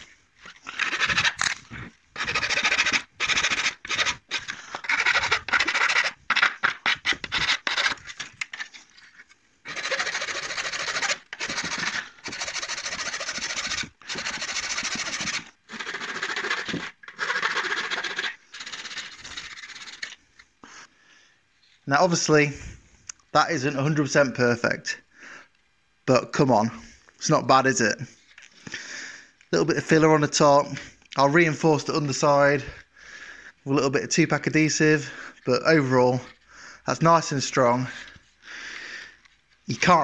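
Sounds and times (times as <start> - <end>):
hand file rasping on plastic: 0.0 - 8.6, 9.7 - 20.2.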